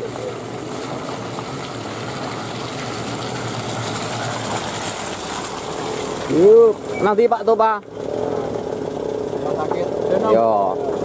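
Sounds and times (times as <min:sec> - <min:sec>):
tyres churning through mud: 0:00.0 - 0:11.0
vehicle engine running: 0:00.0 - 0:11.0.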